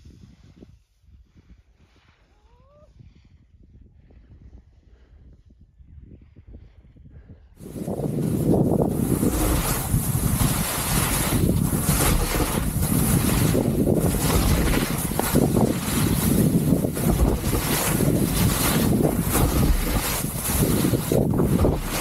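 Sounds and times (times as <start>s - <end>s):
wind noise on microphone: 0.0s - 22.0s
skis scraping through snow: 7.6s - 22.0s.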